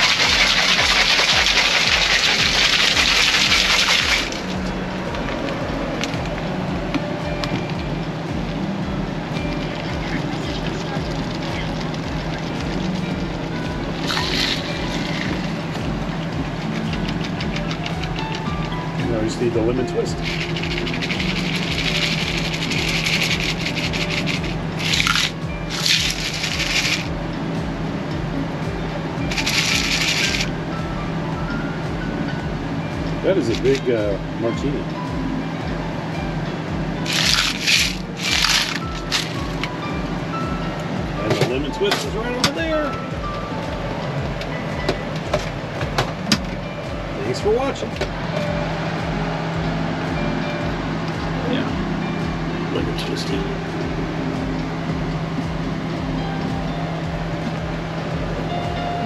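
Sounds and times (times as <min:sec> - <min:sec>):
ice rattling in cocktail shaker: 0:00.0 - 0:04.6, 0:14.0 - 0:15.4, 0:20.1 - 0:27.1, 0:29.3 - 0:30.5, 0:37.1 - 0:39.5
air conditioner humming: 0:00.0 - 0:59.0.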